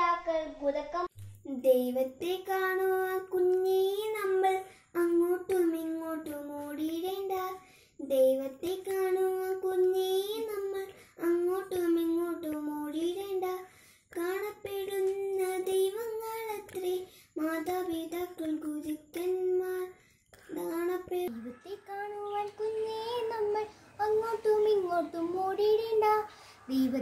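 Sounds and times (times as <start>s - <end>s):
boy singing unaccompanied: 0.0s - 27.0s.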